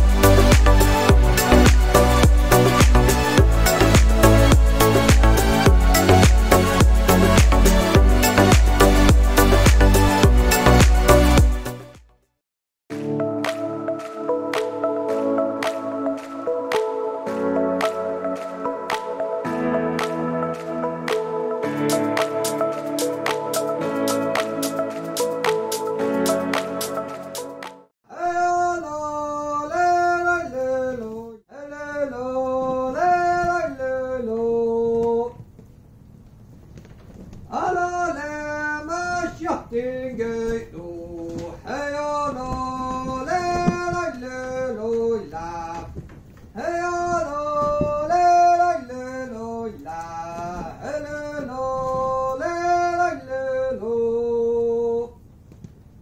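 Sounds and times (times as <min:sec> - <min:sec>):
person singing long held notes: 0:28.1 - 0:35.4
solo unaccompanied voice singing: 0:28.1 - 0:35.4, 0:37.5 - 0:46.0, 0:46.6 - 0:55.2.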